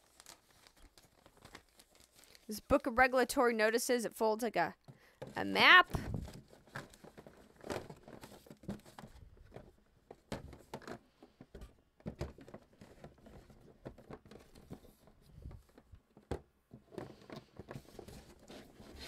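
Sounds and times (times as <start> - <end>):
paper rustling: 0.0 - 3.0.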